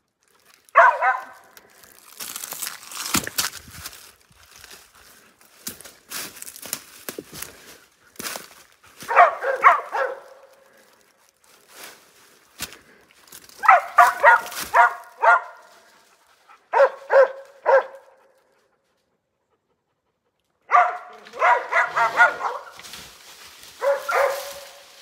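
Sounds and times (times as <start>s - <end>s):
footsteps on dry leaves: 0.2s - 18.4s, 21.0s - 25.0s
dogs barking: 0.7s - 1.6s, 9.0s - 10.6s, 13.6s - 15.9s, 16.5s - 18.6s, 20.6s - 22.8s, 23.8s - 24.9s.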